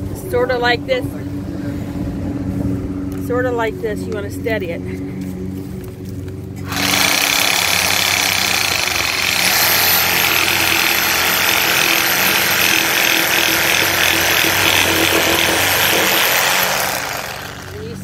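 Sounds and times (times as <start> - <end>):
reciprocating saw cutting wood: 6.6 - 18.0.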